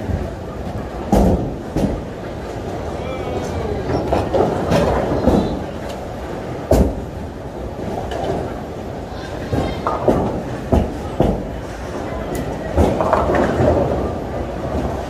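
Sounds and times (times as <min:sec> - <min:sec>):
bowling balls rolling: 0:00.0 - 0:15.0
bowling pins crashing: 0:12.5 - 0:15.0.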